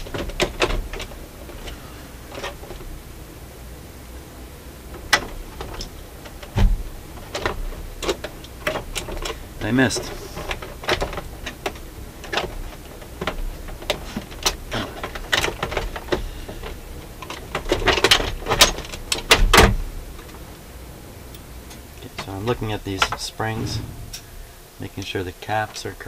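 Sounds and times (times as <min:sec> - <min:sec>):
knocks and thump: 0:23.4 - 0:24.5.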